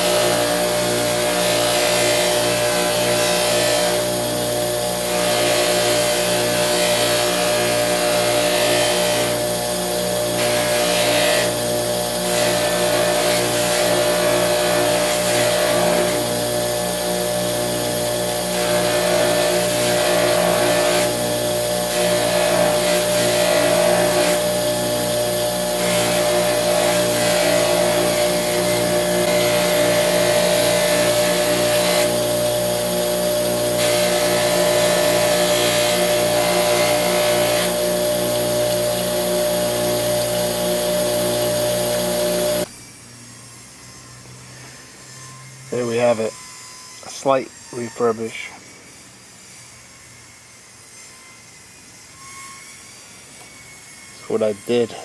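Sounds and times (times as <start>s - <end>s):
buffer motor humming: 0.0s - 42.7s
metal grinding on spinning wheel: 12.2s - 42.7s.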